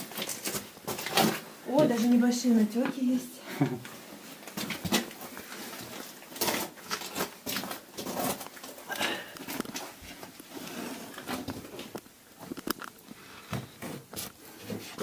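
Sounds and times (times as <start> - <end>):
clothing and boots scraping rock: 4.6 - 8.8, 9.7 - 11.9.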